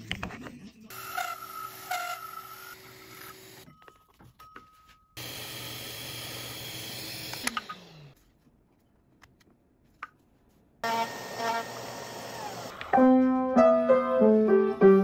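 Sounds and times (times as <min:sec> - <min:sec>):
drill press cutting wood: 0:00.9 - 0:03.6, 0:05.2 - 0:08.1, 0:10.8 - 0:12.9.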